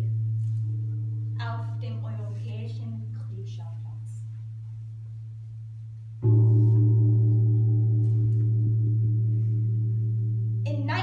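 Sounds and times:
deep gong ringing: 0:06.2 - 0:10.7.

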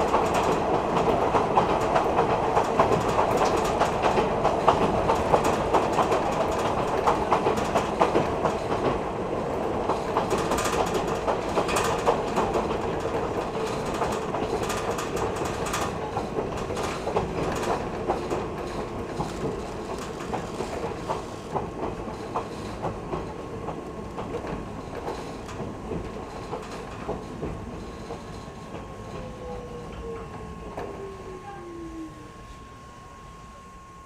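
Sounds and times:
train rumble inside car: 0:00.0 - 0:34.0
wheels clicking over rail joints: 0:09.6 - 0:29.3.

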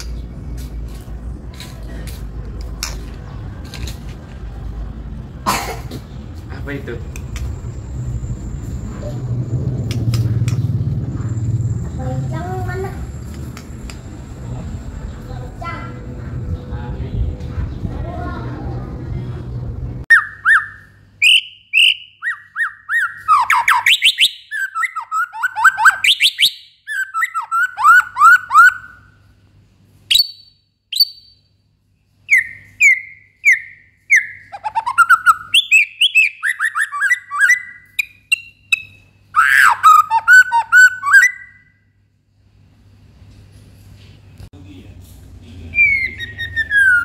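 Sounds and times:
bird singing varied song: 0:20.1 - 0:29.0, 0:30.1 - 0:31.5, 0:32.1 - 0:41.8, 0:45.7 - 0:47.0.

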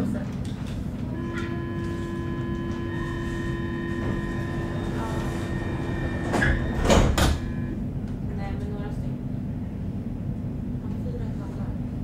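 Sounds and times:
train equipment humming: 0:00.4 - 0:11.5
high whining tones: 0:01.1 - 0:07.9.

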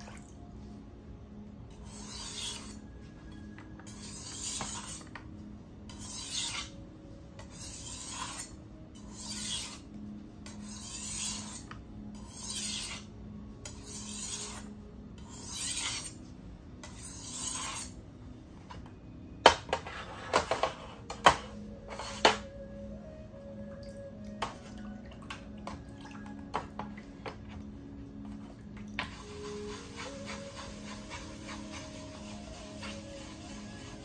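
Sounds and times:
block scraping on whetstone: 0:03.9 - 0:05.1, 0:07.4 - 0:08.5, 0:19.7 - 0:22.5.

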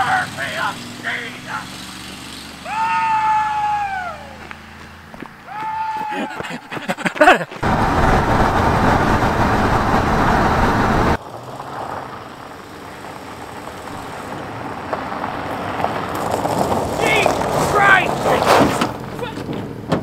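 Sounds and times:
steady engine hum: 0:00.0 - 0:20.0
engine running roughly: 0:07.6 - 0:11.4.

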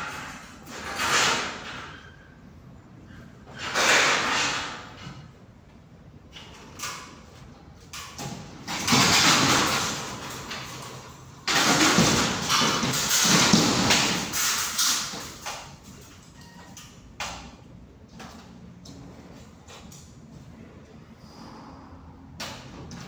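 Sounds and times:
ceiling boards scraping and tearing: 0:00.0 - 0:02.0, 0:03.5 - 0:05.1, 0:08.2 - 0:15.6.

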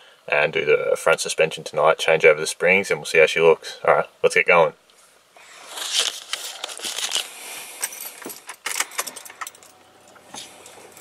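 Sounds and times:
car keys jangling and clicking: 0:07.7 - 0:11.0.

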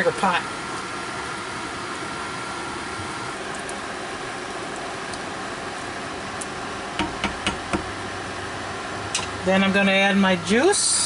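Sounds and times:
fan whirring: 0:00.0 - 0:11.0
wooden spoon knocking on pot: 0:07.0 - 0:07.9.

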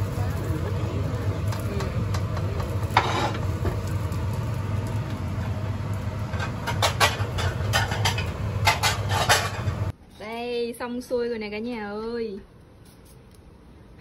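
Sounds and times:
gas hob rumble: 0:00.0 - 0:12.4
spatula scraping frying pan: 0:02.9 - 0:03.5, 0:06.4 - 0:09.8.

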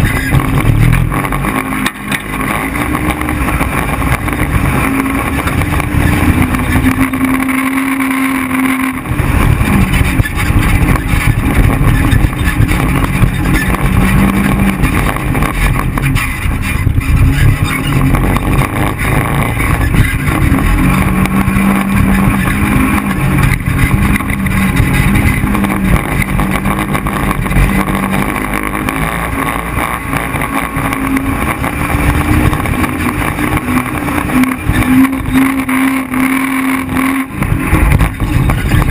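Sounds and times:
off-road vehicle engine revving: 0:00.0 - 0:38.9
wind noise on microphone: 0:08.5 - 0:35.7, 0:36.8 - 0:38.9.

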